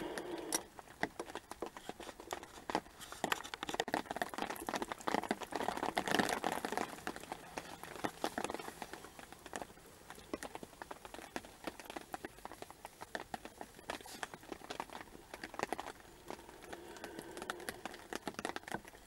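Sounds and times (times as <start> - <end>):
faint steady rain hiss: 0.0 - 19.0
rain drops tapping: 0.0 - 19.0.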